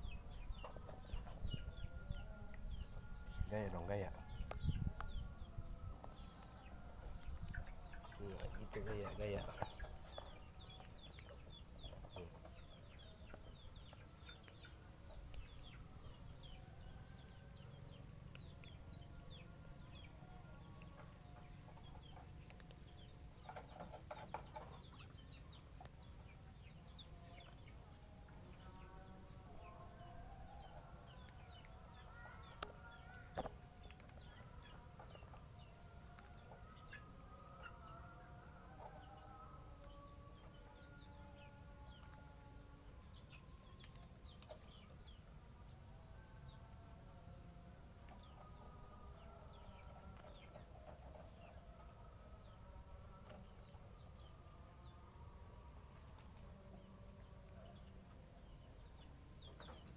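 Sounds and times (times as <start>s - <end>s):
chickens clucking: 6.1s - 16.6s, 17.6s - 27.9s.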